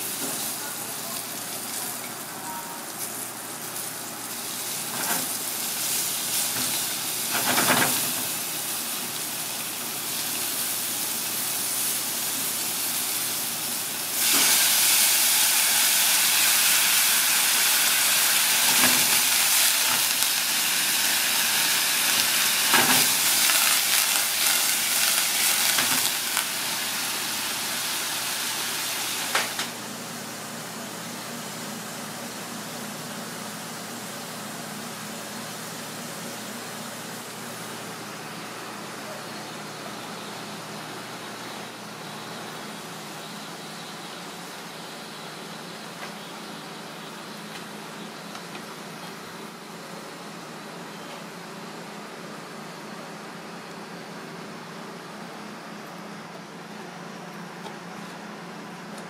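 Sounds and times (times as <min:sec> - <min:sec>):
food sizzling in a pan: 0:00.0 - 0:45.3
steam hissing: 0:00.0 - 0:46.0.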